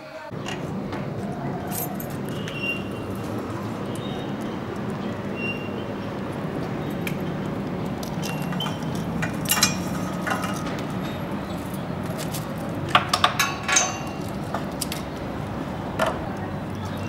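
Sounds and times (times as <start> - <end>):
metal chain and padlock clinking: 1.6 - 4.2, 7.9 - 15.2.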